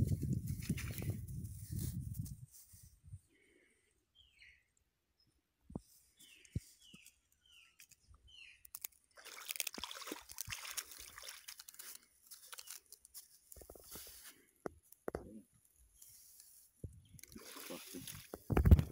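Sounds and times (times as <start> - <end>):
net dragged through water and sand: 9.2 - 12.8.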